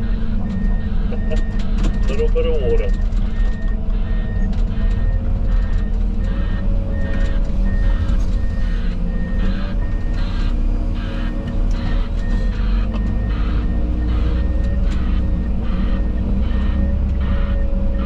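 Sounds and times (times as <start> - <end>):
heavy diesel machinery droning: 0.0 - 18.0
reversing alarm beeping: 0.0 - 18.0.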